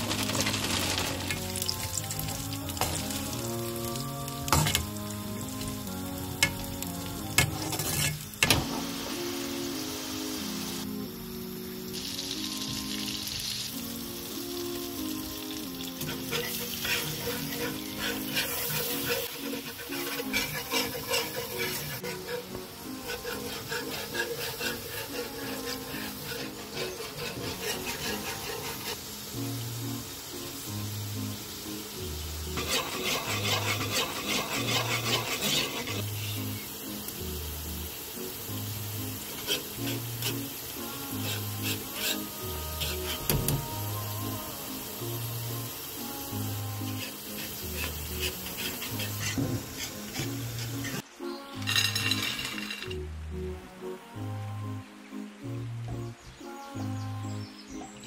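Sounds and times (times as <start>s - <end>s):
whisk scraping a frying pan: 0.0s - 3.5s, 6.4s - 8.4s, 15.9s - 29.4s, 32.4s - 36.7s, 39.0s - 44.0s, 46.3s - 51.0s, 51.6s - 52.9s
chips sizzling in hot oil: 0.0s - 53.4s.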